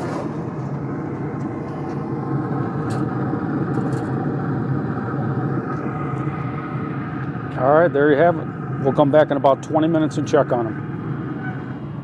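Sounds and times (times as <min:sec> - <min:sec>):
pellet grill humming: 0:00.0 - 0:12.0.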